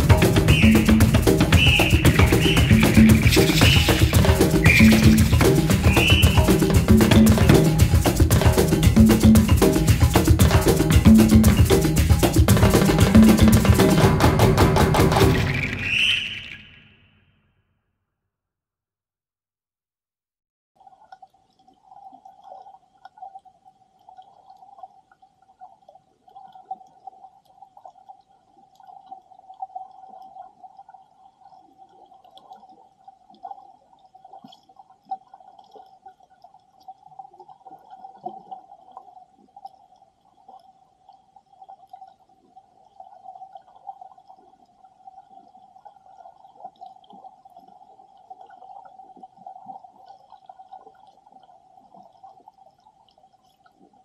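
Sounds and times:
muffled underwater rush: 0.0 - 17.0.

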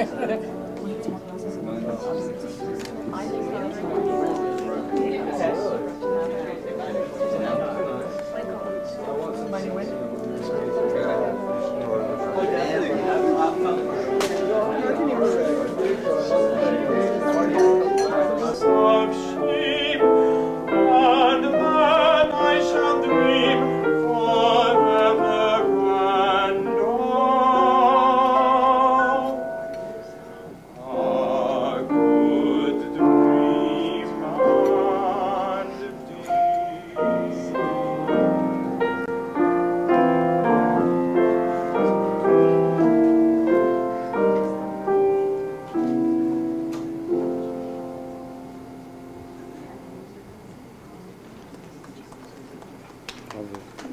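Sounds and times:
grand piano: 0.0 - 53.9
operatic singing voice: 18.2 - 29.4, 30.8 - 38.4.

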